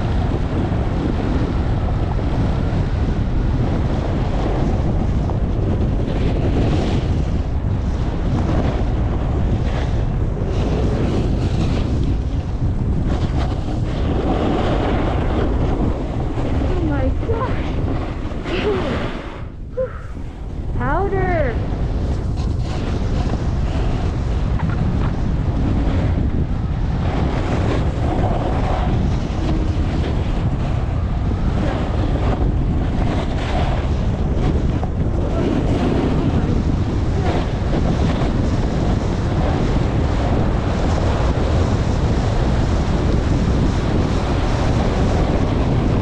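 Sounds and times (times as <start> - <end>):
wind buffeting microphone: 0.0 - 46.0
skis scraping on packed snow: 22.0 - 25.0.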